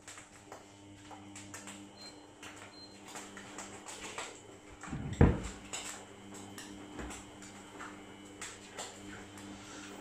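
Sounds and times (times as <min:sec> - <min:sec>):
low electrical hum: 0:00.0 - 0:10.0
loud thump: 0:05.0 - 0:05.5.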